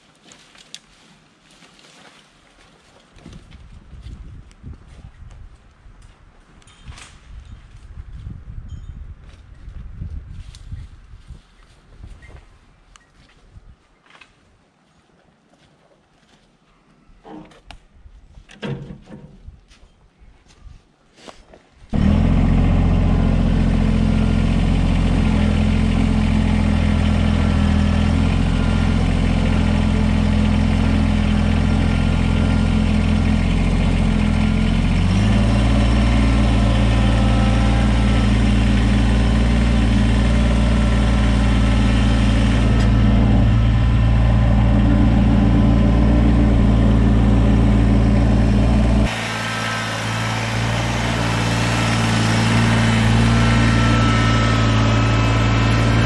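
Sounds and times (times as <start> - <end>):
tractor diesel engine running: 22.0 - 56.0.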